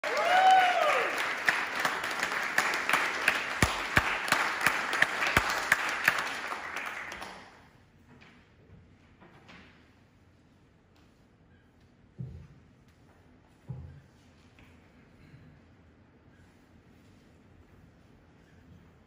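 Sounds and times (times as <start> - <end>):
person whooping: 0.0 - 1.2
audience applauding: 0.0 - 7.6.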